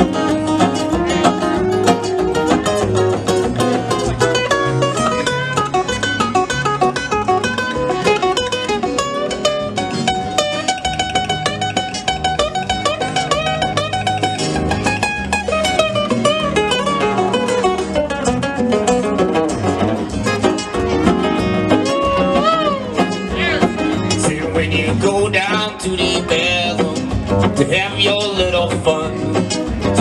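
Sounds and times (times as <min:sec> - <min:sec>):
acoustic blues guitar picking: 0:00.0 - 0:30.0.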